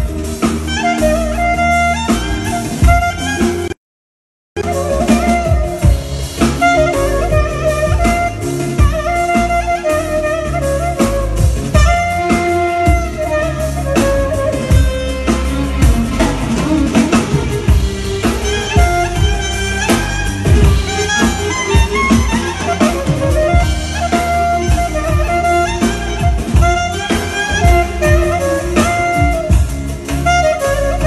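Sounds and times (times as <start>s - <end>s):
clarinet melody: 0.0s - 3.8s, 4.6s - 31.0s
electronic keyboard accompaniment: 0.0s - 3.8s, 4.6s - 31.0s
drum beat: 2.2s - 3.7s, 4.6s - 31.0s.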